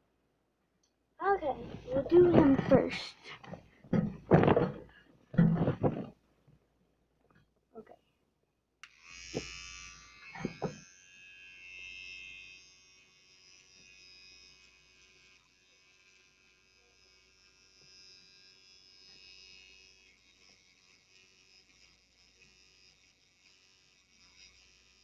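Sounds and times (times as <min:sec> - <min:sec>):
electric toothbrush buzzing: 0:01.5 - 0:03.2, 0:08.8 - 0:25.0.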